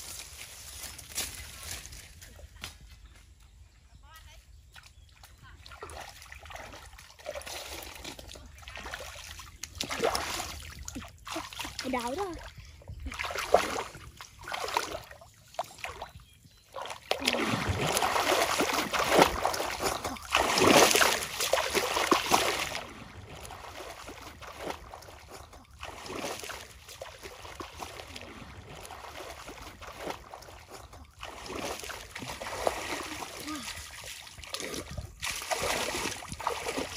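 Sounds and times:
wading through muddy water: 0:00.0 - 0:36.9.

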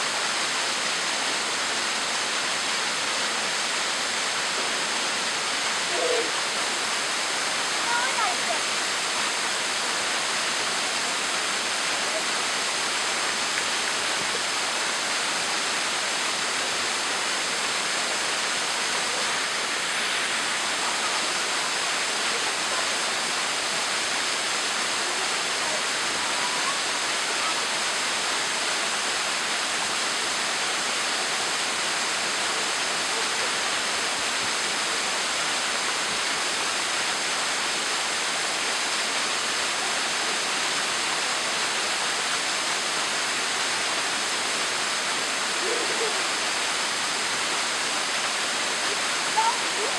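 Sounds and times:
waterfall splashing into pool: 0:00.0 - 0:49.9.

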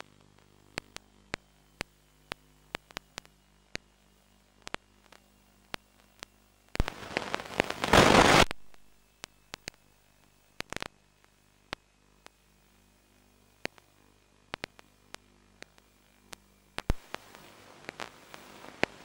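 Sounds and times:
static clicks: 0:00.0 - 0:19.0
burst of hissing noise: 0:06.8 - 0:08.5.

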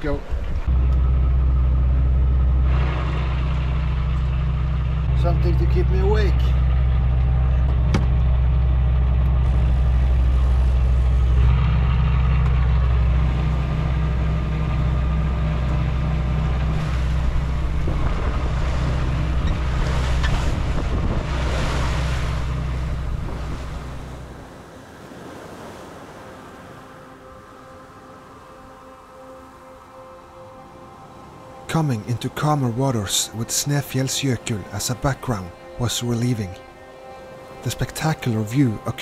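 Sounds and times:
water rushing along hull: 0:00.0 - 0:39.0
boat engine running: 0:00.2 - 0:24.8.

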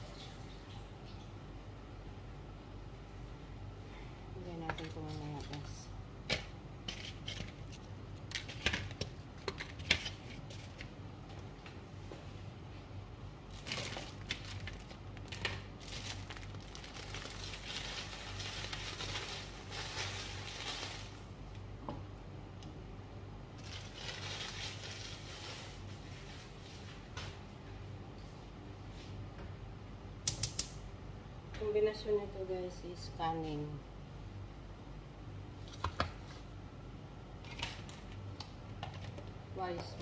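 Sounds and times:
sharp pops and crackles: 0:30.2 - 0:30.8.

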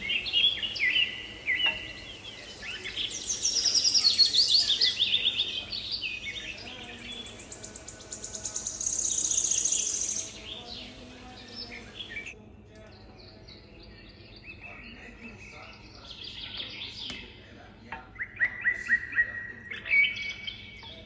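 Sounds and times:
fast high bird trill: 0:00.0 - 0:12.3
songbird chirping and whistling: 0:00.0 - 0:21.0.

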